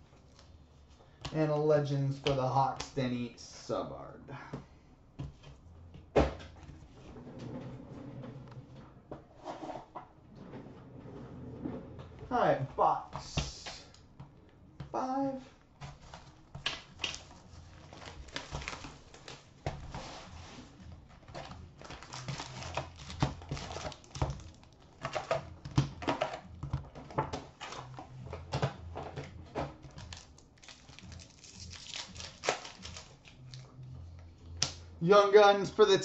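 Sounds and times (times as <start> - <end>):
rustling of card pack wrappers: 15.0 - 33.6.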